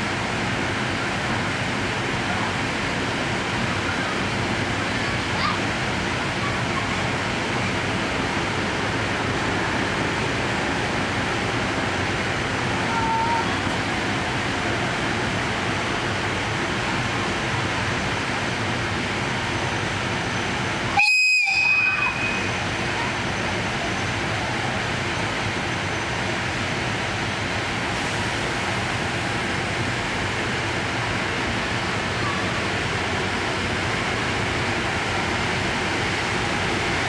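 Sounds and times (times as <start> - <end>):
train easing along platform: 0.0 - 37.0
train whistle toot: 20.9 - 22.5.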